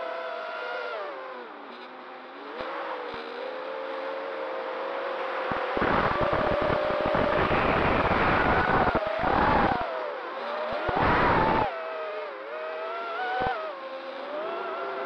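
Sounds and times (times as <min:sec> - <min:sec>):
quadcopter motors whining: 0:05.5 - 0:15.0.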